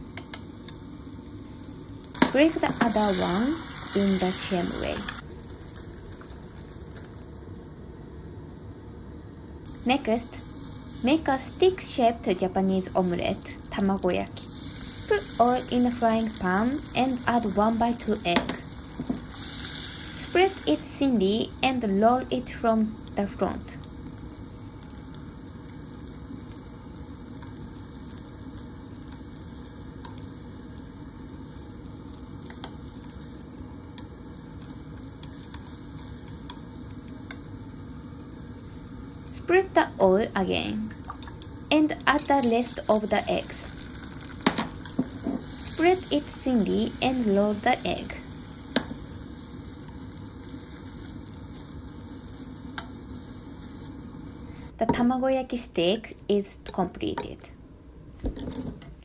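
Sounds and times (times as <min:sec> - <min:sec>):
egg sizzling in frying pan: 0:00.0 - 0:07.9, 0:09.7 - 0:54.8
chopsticks clicking on pan: 0:00.1 - 0:00.8, 0:30.0 - 0:30.2, 0:33.9 - 0:37.5.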